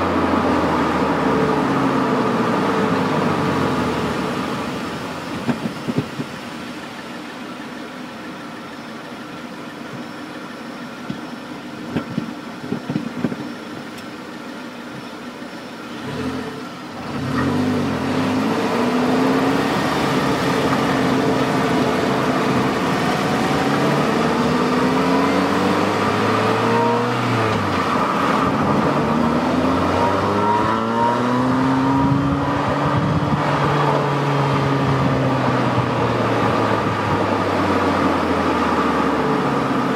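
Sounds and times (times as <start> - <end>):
car exhaust idling and revving: 0.0 - 39.9.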